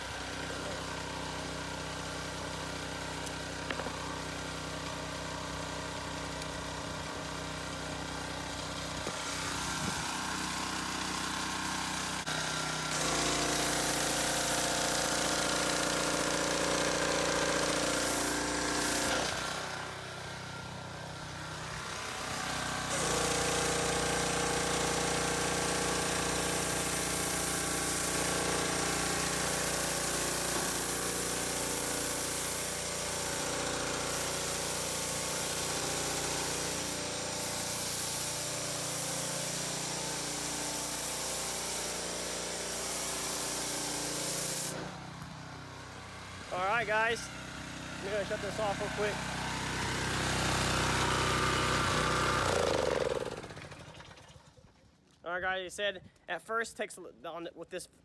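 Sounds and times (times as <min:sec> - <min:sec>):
pressure washer engine running: 0:00.0 - 0:54.6
foam cannon spraying hiss: 0:02.1 - 0:20.0, 0:22.1 - 0:45.1.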